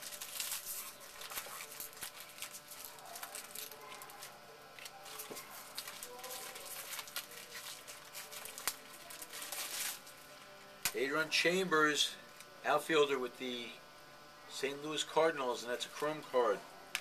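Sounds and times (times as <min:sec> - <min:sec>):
cards clicking and rustling: 0:00.0 - 0:10.2
faint voices: 0:00.0 - 0:12.8.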